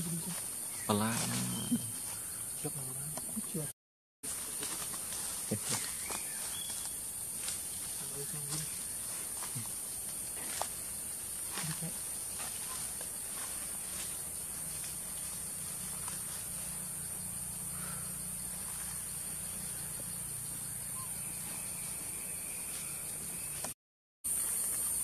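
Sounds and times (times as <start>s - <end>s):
high-pitched insect chorus: 0.0s - 3.7s, 4.3s - 25.0s
faint ticks and rustles: 4.3s - 16.8s.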